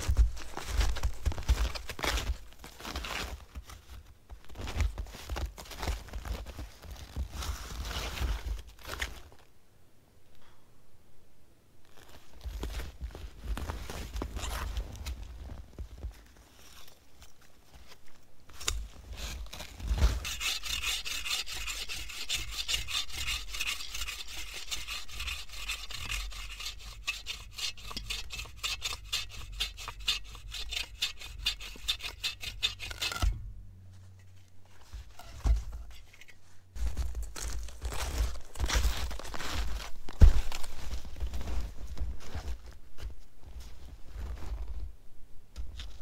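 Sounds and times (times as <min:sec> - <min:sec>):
saw cutting through log: 0:20.2 - 0:33.3.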